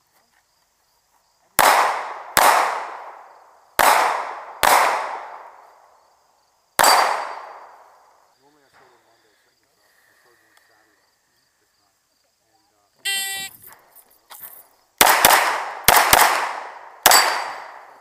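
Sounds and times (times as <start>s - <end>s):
pistol shots echoing: 1.6s - 3.2s, 3.8s - 5.6s, 6.8s - 7.8s, 15.0s - 18.0s.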